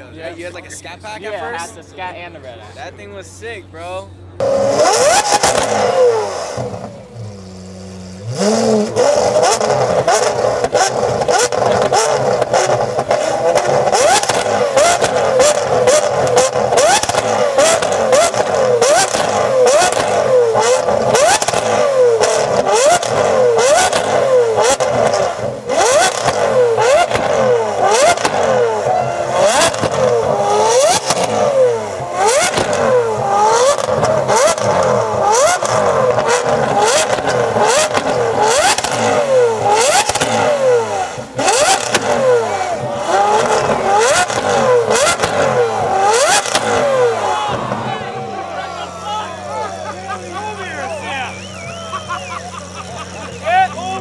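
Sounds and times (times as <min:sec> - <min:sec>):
car engine revving: 0:00.0 - 0:54.0
exhaust pops and bangs: 0:09.1 - 0:49.0.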